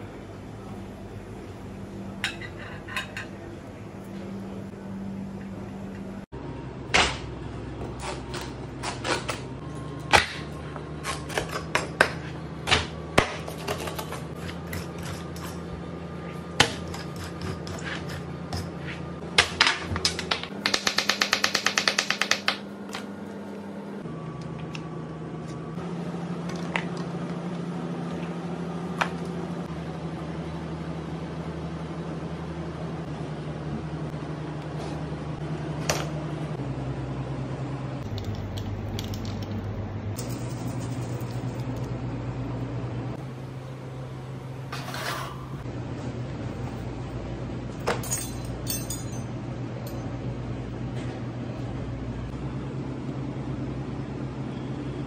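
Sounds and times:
steady low hum: 0:00.0 - 0:20.7, 0:22.6 - 0:55.0.

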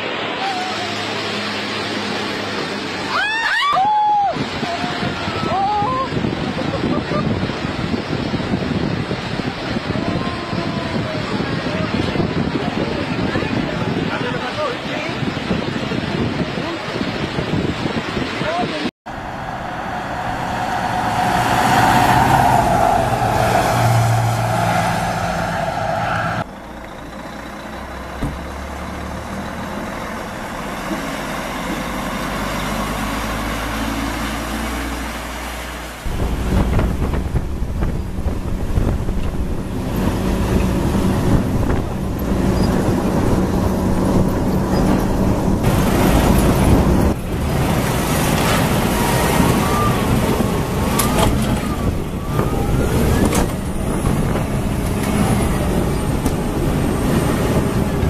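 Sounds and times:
truck diesel engine: 0:00.0 - 0:03.2, 0:19.1 - 0:58.0
engine whine: 0:19.1 - 0:58.0.

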